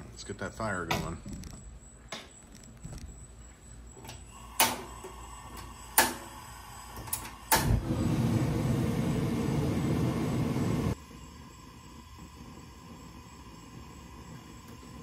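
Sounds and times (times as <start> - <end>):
igniter clicks: 4.0 - 8.0
gas burner rushing: 4.0 - 15.0.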